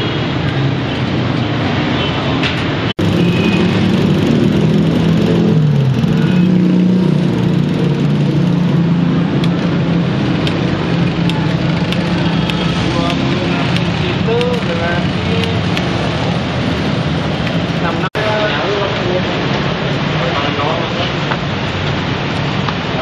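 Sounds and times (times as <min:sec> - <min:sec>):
vehicle engine running: 0:03.0 - 0:18.1.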